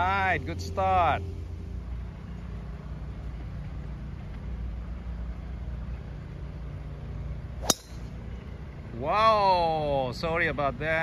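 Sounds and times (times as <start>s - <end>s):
low background rumble: 0.0s - 11.0s
golf club striking ball: 7.6s - 8.2s.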